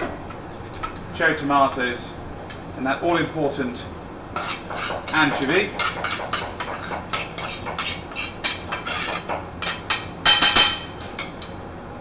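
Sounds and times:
metal spoon scraping frying pan: 0:04.4 - 0:09.8.

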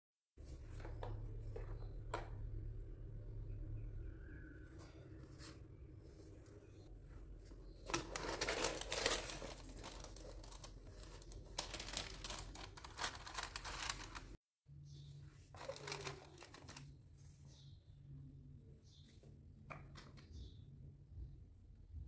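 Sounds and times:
sticker sheet rustling: 0:07.9 - 0:14.4, 0:15.6 - 0:16.8
tissue paper rustling: 0:07.9 - 0:14.4, 0:15.6 - 0:16.9.

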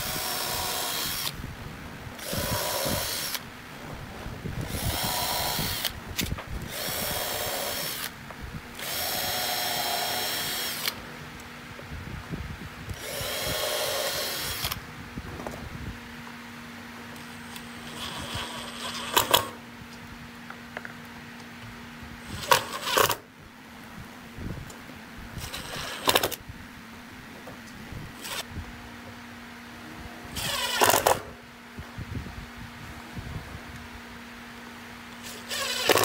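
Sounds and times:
cordless drill driving screws: 0:00.0 - 0:01.4, 0:02.2 - 0:03.4, 0:04.6 - 0:08.1, 0:08.8 - 0:11.0, 0:12.9 - 0:14.8, 0:17.5 - 0:19.6, 0:22.3 - 0:23.2, 0:25.4 - 0:26.4, 0:28.2 - 0:28.5, 0:30.3 - 0:31.3, 0:35.2 - 0:36.0
drill bit and screw clicks: 0:02.2 - 0:03.4, 0:08.8 - 0:11.0, 0:12.9 - 0:14.8, 0:17.2 - 0:19.6, 0:25.4 - 0:26.4, 0:28.2 - 0:28.5, 0:30.4 - 0:31.3, 0:35.2 - 0:36.0.

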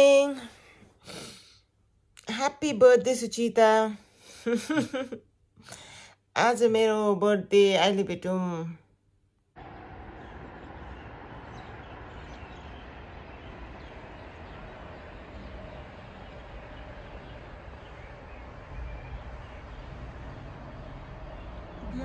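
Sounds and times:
low street rumble: 0:09.6 - 0:22.0.

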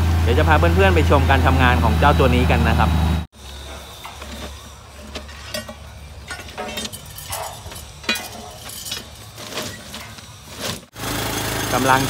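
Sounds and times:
pry bars striking steel rail: 0:03.4 - 0:10.9.

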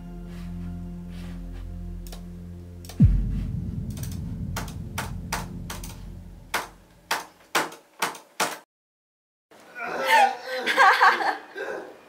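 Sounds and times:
deep boom with falling pitch: 0:03.0 - 0:07.1.

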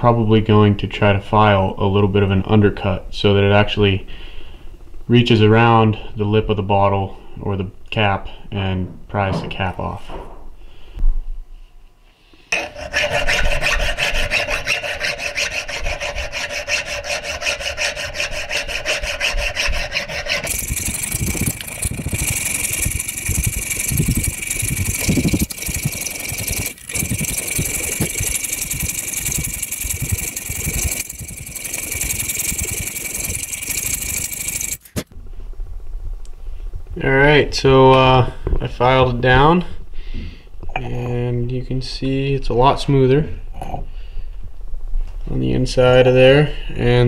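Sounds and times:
file rasping on steel: 0:12.5 - 0:35.0.

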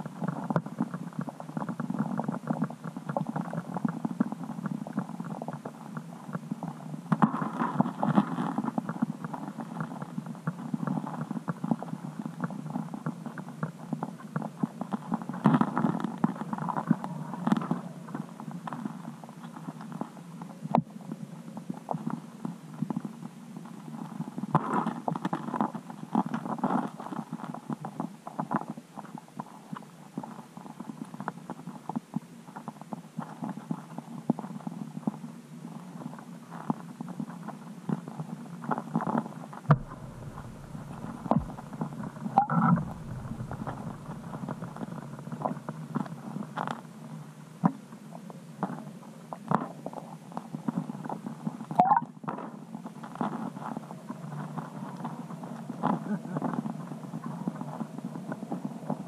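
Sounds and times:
low underwater gurgle: 0:39.7 - 0:45.0
underwater crackling and clicking: 0:39.7 - 0:45.6.

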